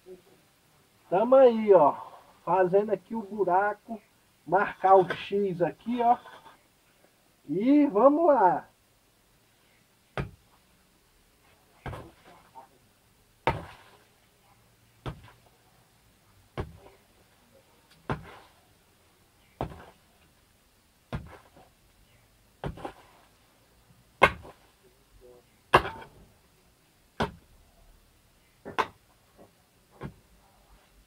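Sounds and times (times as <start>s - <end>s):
digging tool chopping into soil: 25.8s - 26.1s.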